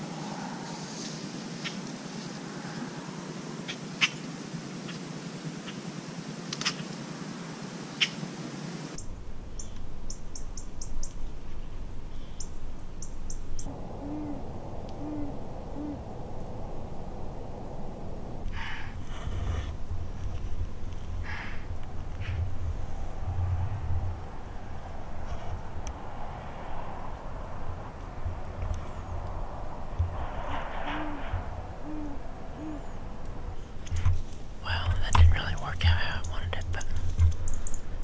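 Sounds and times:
small bird chirping: 9.0s - 11.3s, 12.1s - 14.4s, 36.2s - 38.0s
owl hooting: 13.3s - 17.4s, 30.8s - 33.8s.

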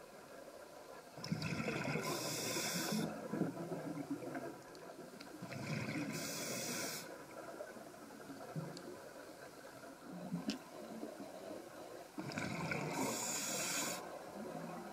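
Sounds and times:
diver breathing through regulator: 2.0s - 3.1s, 5.9s - 7.1s, 12.3s - 14.1s.

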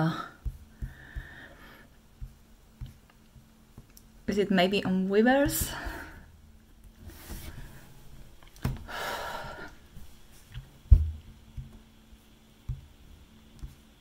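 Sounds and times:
low thump: 10.9s - 11.2s.

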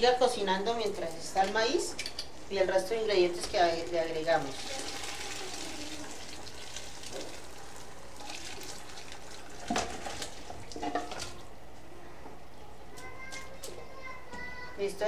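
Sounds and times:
broth pouring and splashing: 4.2s - 11.4s.

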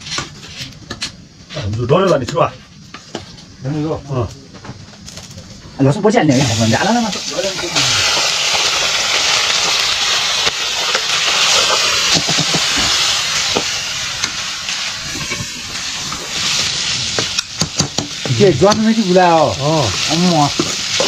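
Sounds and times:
meat sizzling in hot oil: 6.3s - 21.0s.

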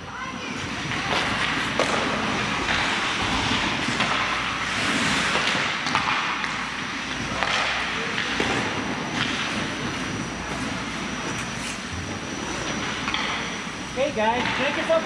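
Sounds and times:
skate blades scraping ice: 0.6s - 6.3s
hockey sticks and puck clacking: 0.7s - 9.6s, 12.9s - 13.4s, 14.4s - 15.0s.

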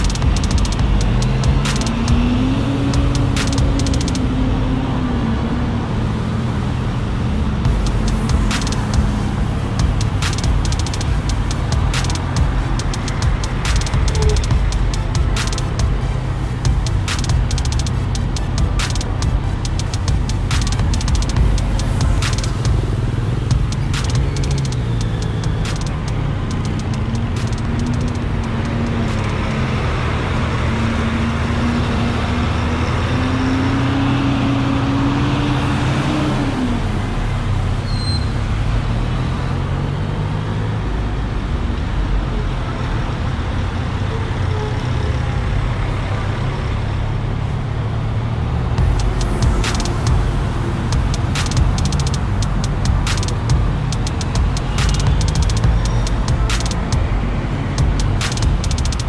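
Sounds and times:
motorcycle engine running: 0.0s - 4.3s, 7.6s - 29.8s, 48.8s - 59.0s
traffic noise: 0.0s - 59.0s.

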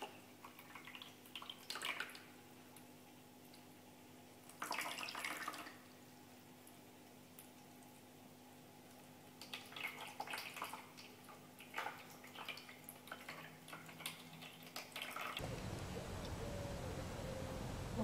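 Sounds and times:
water splashing in pet fountain: 0.0s - 2.4s, 4.4s - 5.9s, 9.2s - 15.5s
faint steady hum: 15.4s - 18.0s.

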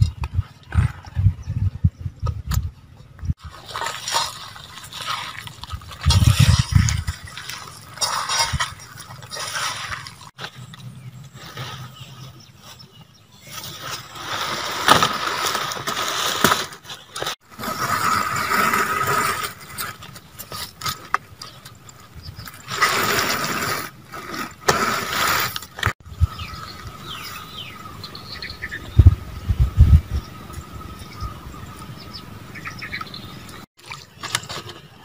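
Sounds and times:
banana leaf rustling and crinkling: 3.4s - 26.0s, 33.8s - 35.0s.

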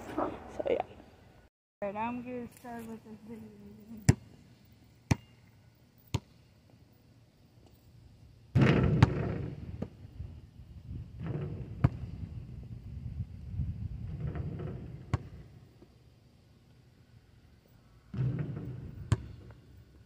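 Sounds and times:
basketball bouncing on asphalt: 4.0s - 4.4s, 5.0s - 5.4s, 6.0s - 6.5s, 8.5s - 10.1s, 11.1s - 12.5s, 14.0s - 16.0s, 18.0s - 20.0s
wind noise on microphone: 8.6s - 15.4s.

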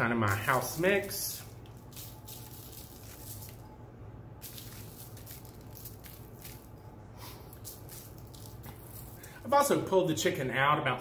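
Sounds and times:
seasoning sprinkled rustling: 0.0s - 3.8s, 4.4s - 9.4s
faint low hum: 0.0s - 11.0s.

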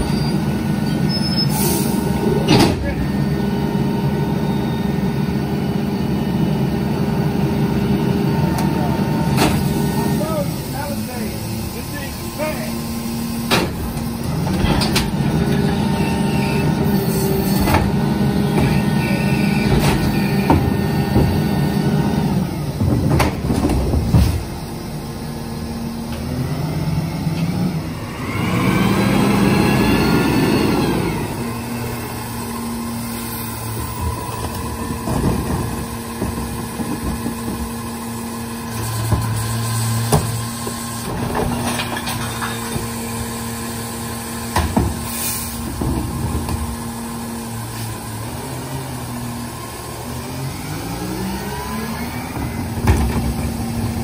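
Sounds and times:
truck engine revving: 0.0s - 41.7s, 42.8s - 54.0s
cart banging and clattering: 33.8s - 38.3s, 38.9s - 43.2s.

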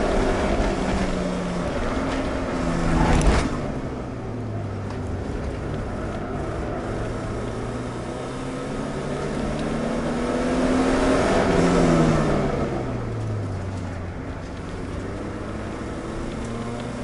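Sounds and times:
car engine accelerating: 0.0s - 17.0s.

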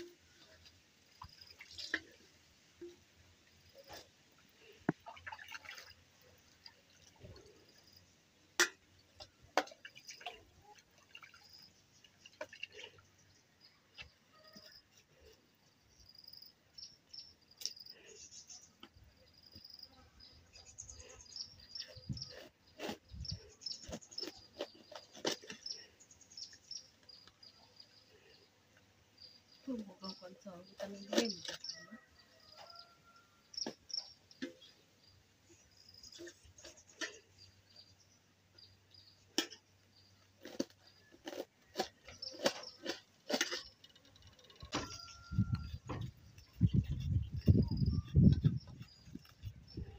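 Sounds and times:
knife crunching through cabbage: 22.2s - 25.9s, 40.4s - 43.8s.

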